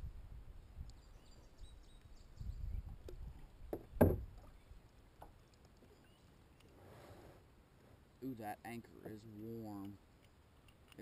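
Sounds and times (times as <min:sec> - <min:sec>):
anchor knocking against hull: 0:03.7 - 0:04.4.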